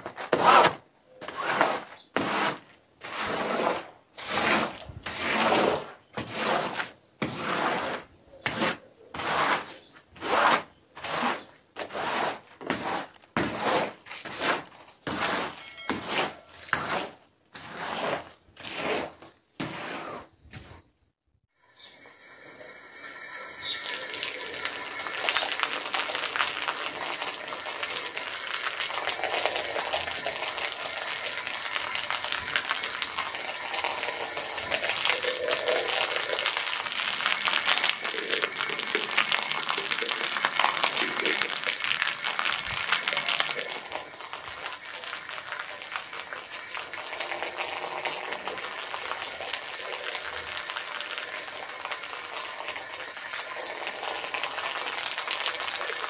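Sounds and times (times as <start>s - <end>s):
wet carpet scrubbing: 0.2s - 20.3s.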